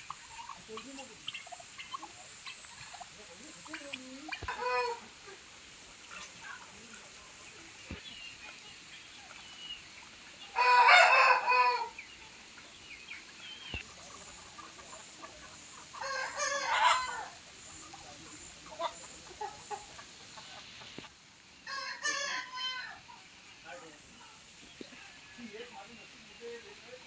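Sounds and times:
chicken clucking: 0.0s - 27.0s
rooster crowing: 10.5s - 12.0s, 16.0s - 17.4s, 21.6s - 23.0s.

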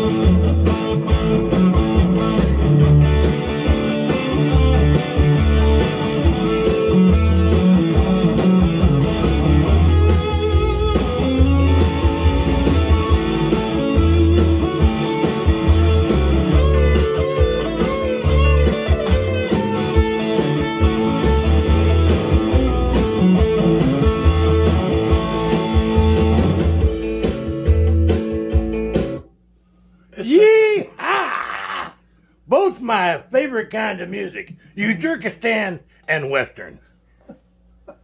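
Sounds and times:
electric guitar country licks: 0.0s - 29.2s.

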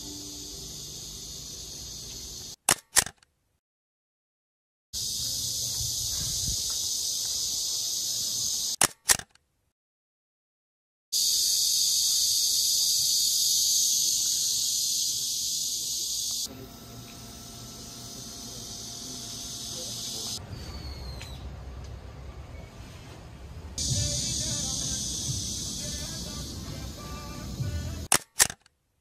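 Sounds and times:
high-pitched insect chorus: 0.0s - 2.6s, 5.0s - 8.8s, 11.2s - 16.5s, 17.6s - 20.4s, 23.8s - 28.1s.

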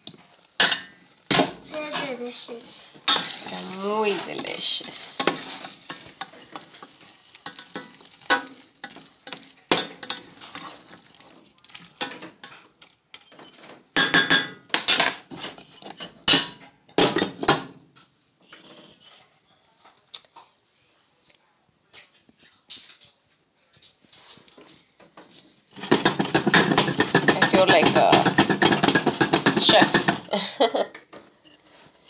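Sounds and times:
sauce sizzling: 0.0s - 12.5s
utensil scraping a metal pot: 0.6s - 13.3s, 25.7s - 30.3s.

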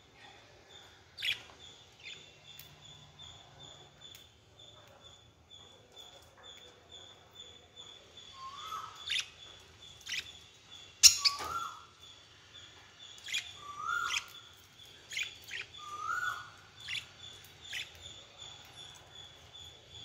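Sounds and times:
budgerigars chirping: 11.0s - 11.8s.

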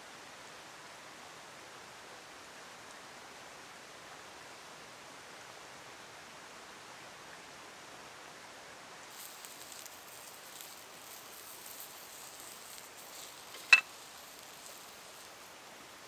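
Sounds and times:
sausages sizzling in a skillet: 9.1s - 16.0s
metal skillet clank: 13.5s - 13.9s.

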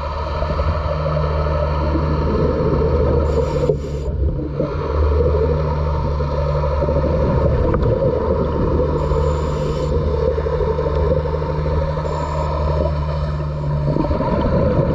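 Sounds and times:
diver breathing through regulator: 3.2s - 4.2s, 9.0s - 10.0s
high hiss of inhale: 3.3s - 4.1s.

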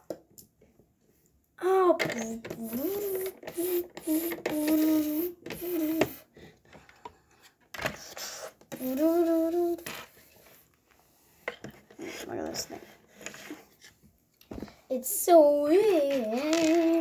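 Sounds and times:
child humming: 2.5s - 6.2s, 8.7s - 9.8s.

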